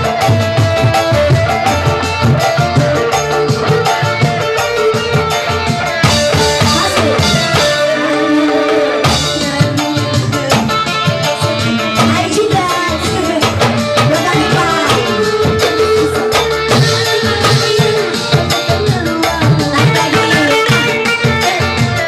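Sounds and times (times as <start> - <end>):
electric guitar: 0.0 - 22.0
hand-drum beats: 0.0 - 22.0
keyboard: 0.0 - 22.0
woman singing into a microphone: 6.0 - 22.0.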